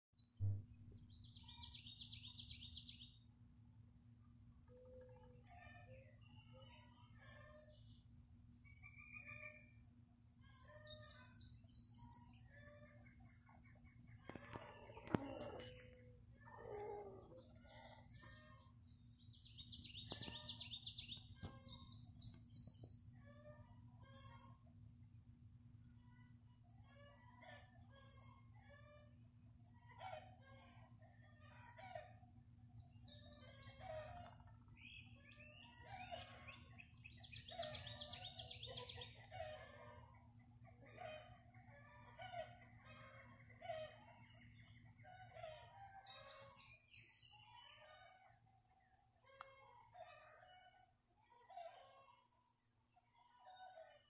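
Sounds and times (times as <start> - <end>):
hen clucking: 12.5 - 18.7
chicks peeping: 12.6 - 18.5.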